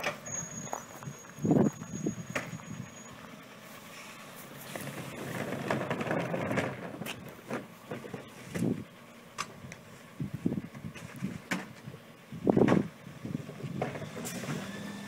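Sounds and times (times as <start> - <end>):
wheelie bin rolling on gravel: 0.0 - 3.1, 4.4 - 8.8
garbage truck idling: 0.0 - 15.0.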